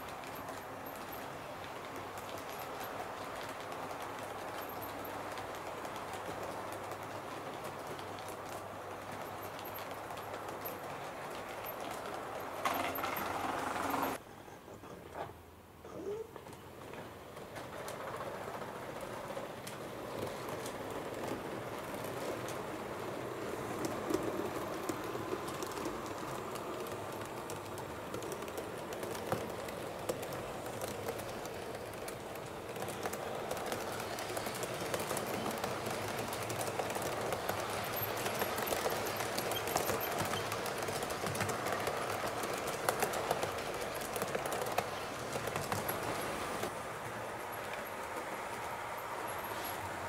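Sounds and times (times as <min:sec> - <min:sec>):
model train rolling hum: 0:00.0 - 0:14.2, 0:16.4 - 0:50.0
wheels clicking over rail joints: 0:00.0 - 0:50.0.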